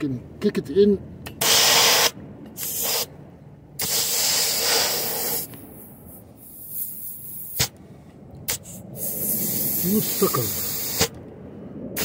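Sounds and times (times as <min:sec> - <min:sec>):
compressed air hissing from tyre valve: 0:01.3 - 0:03.1, 0:03.8 - 0:07.8, 0:08.5 - 0:11.2.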